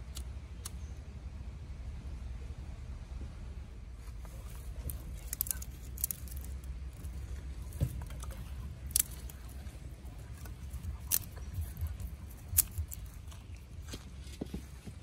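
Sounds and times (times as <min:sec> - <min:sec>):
low steady rumble: 0:00.0 - 0:15.0
twigs crackling in fire: 0:04.0 - 0:15.0.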